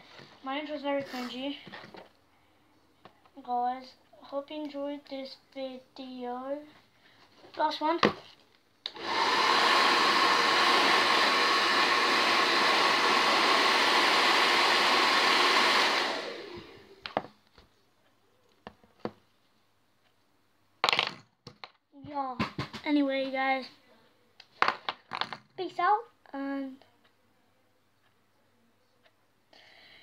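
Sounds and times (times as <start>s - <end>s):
hair dryer blowing: 8.9s - 17.2s.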